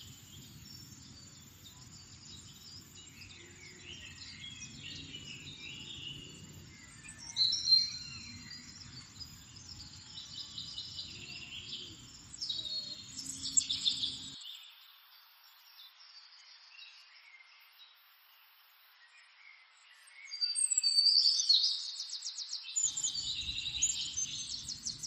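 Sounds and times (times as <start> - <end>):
birds chirping and trilling: 0.0 - 14.5, 22.8 - 25.0
low steady background noise: 0.0 - 16.7.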